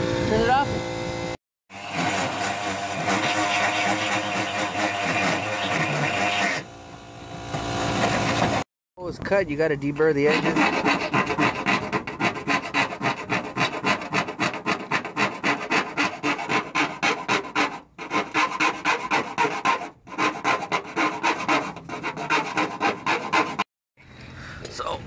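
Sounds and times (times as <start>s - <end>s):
hand file scraping metal: 1.7s - 6.6s, 10.0s - 23.7s.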